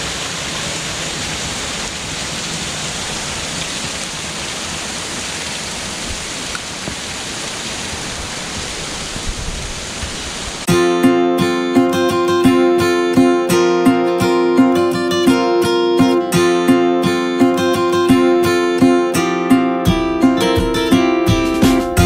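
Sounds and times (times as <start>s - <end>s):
rain hissing: 0.0s - 10.7s
running water: 0.0s - 19.4s
acoustic guitar music: 10.7s - 22.0s.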